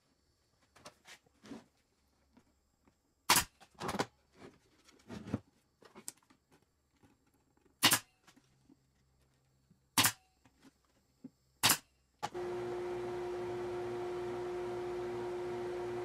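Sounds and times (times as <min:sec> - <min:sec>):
nail gun shots: 0:03.3 - 0:03.6, 0:07.8 - 0:08.1, 0:10.0 - 0:10.2, 0:11.6 - 0:11.9.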